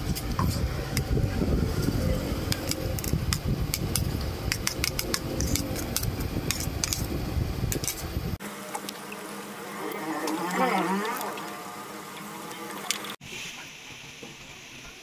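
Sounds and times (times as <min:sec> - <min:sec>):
low rumble: 0:00.0 - 0:08.4
onions frying in oil: 0:00.0 - 0:15.0
buzzing insect: 0:08.5 - 0:13.2.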